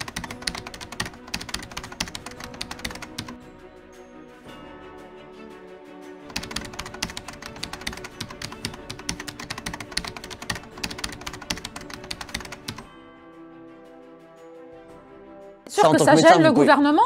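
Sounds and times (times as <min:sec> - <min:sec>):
rapid keyboard typing: 0:00.0 - 0:03.4, 0:06.3 - 0:12.9
background music: 0:00.0 - 0:17.0.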